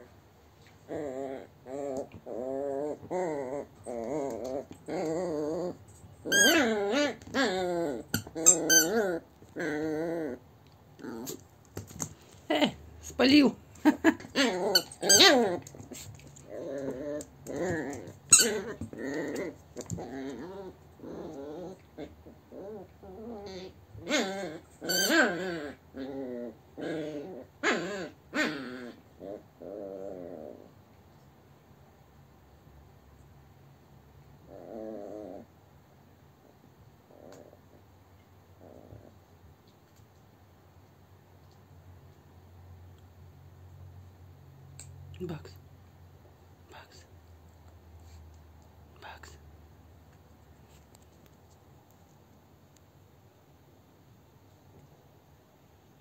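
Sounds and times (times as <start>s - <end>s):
dog growling: 0.8s - 10.4s, 11.0s - 11.4s, 14.0s - 30.8s, 34.4s - 35.5s, 36.4s - 37.9s, 38.6s - 39.2s.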